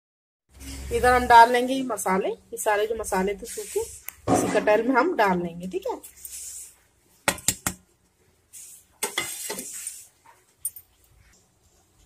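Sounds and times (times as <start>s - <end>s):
spices pouring hiss: 8.5s - 10.1s.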